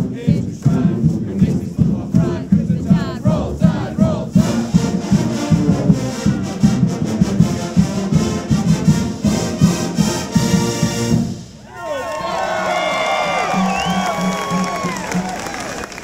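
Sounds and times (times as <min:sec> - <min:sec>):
steady drum beat: 0:00.0 - 0:11.5
marching band playing: 0:00.0 - 0:11.6, 0:12.8 - 0:16.0.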